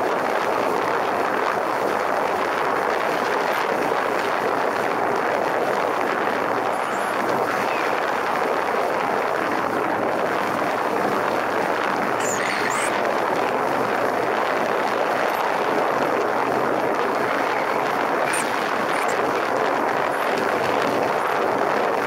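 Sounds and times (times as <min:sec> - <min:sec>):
wind rush on helmet: 0:00.0 - 0:22.0.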